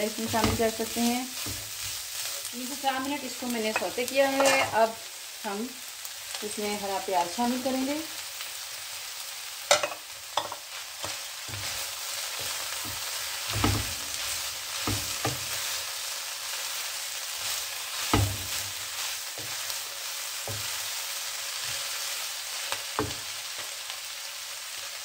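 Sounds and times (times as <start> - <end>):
vegetables sizzling in a wok: 0.0 - 25.0.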